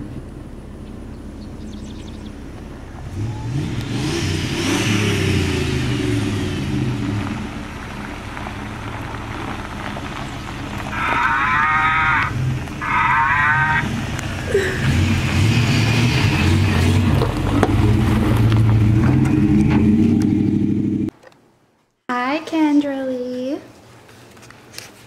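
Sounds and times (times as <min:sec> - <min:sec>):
truck engine running: 0:00.0 - 0:21.1
tyres on gravel: 0:00.0 - 0:21.2
loud wavering high calls: 0:10.8 - 0:14.7.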